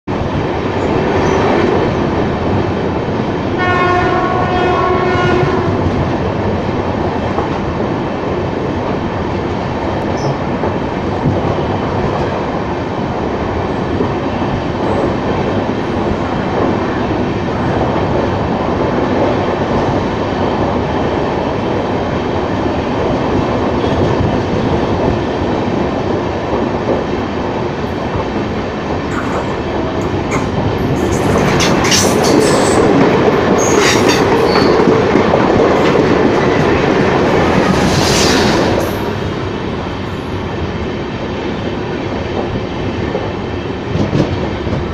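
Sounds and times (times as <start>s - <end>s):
train wheels rumbling on rail: 0.1s - 44.9s
train horn blast: 3.6s - 5.8s.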